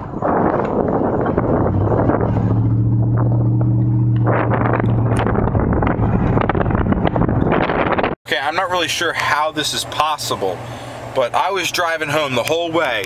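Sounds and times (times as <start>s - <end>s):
wind buffeting microphone: 0.0s - 8.2s
truck engine humming: 0.0s - 13.0s.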